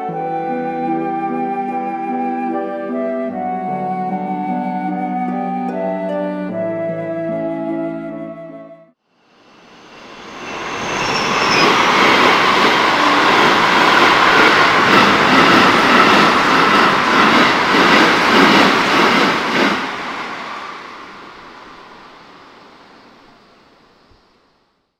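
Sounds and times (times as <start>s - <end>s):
electric train rumble: 9.2s - 24.9s
wheels clacking over rail joints: 10.9s - 22.0s.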